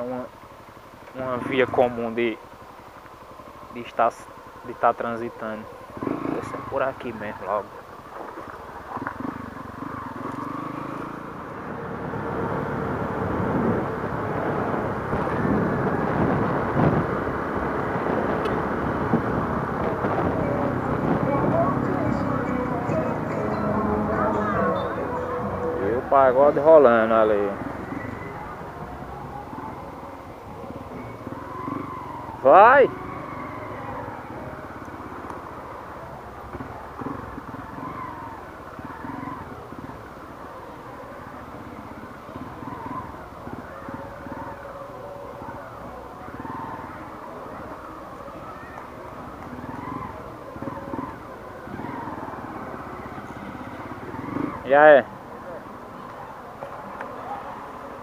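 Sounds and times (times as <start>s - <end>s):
faint street sounds: 0.0s - 58.0s
motorcycle engine rumble: 0.0s - 58.0s
wind noise on microphone: 13.4s - 22.4s.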